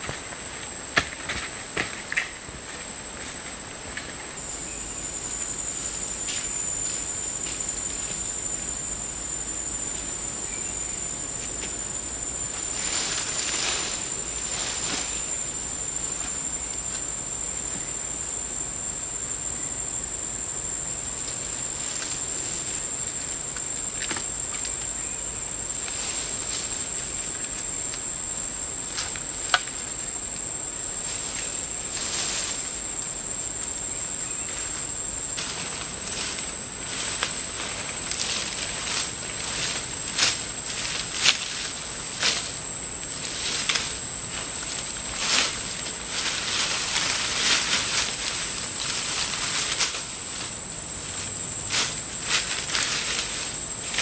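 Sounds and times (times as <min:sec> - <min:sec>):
leafy branches rustling: 0:00.0 - 0:17.9, 0:31.0 - 0:33.0, 0:34.4 - 0:54.0
insects shrilling: 0:00.0 - 0:54.0.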